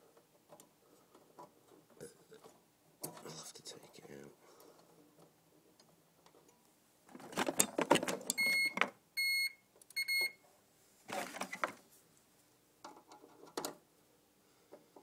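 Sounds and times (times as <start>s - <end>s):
wiring rustling and scraping: 7.1s - 8.6s
alarm panel buzzer beeping: 8.4s - 10.4s.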